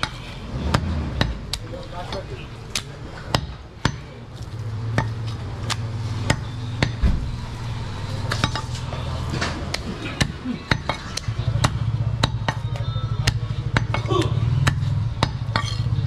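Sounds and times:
cleaver chopping on wooden block: 0:00.0 - 0:04.1, 0:09.7 - 0:15.8.

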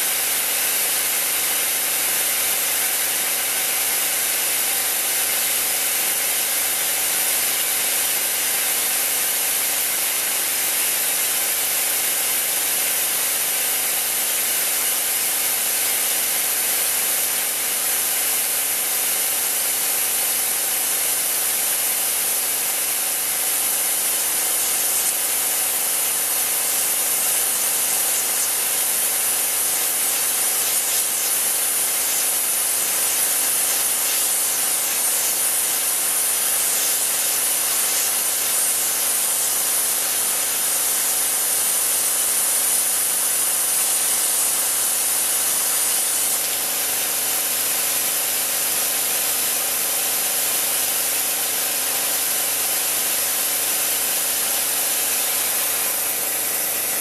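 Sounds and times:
lathe tool cutting hiss: 0:20.7 - 0:48.6, 0:50.1 - 0:57.0.

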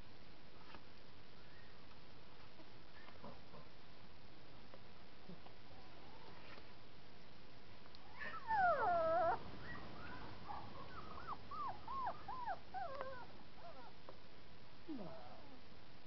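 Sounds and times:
puppy howling and whining: 0:08.1 - 0:14.0.

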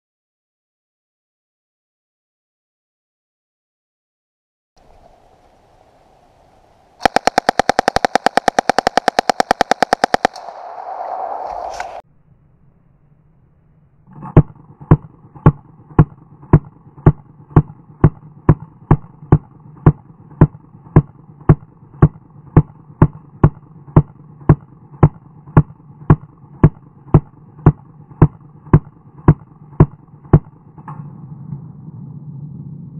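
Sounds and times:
steady low hum: 0:04.8 - 0:32.9
slowed submachine gun shots: 0:07.0 - 0:12.0, 0:14.1 - 0:31.7.

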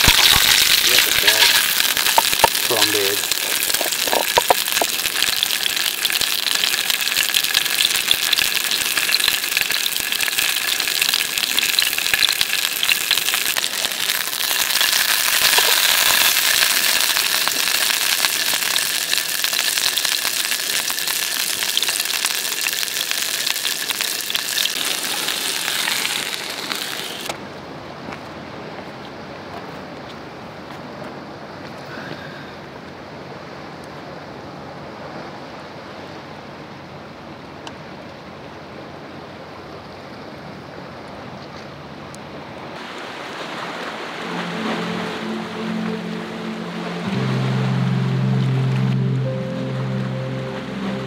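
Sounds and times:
fish sizzling in hot oil: 0:00.0 - 0:27.3
outdoor hiss: 0:00.0 - 0:27.4.

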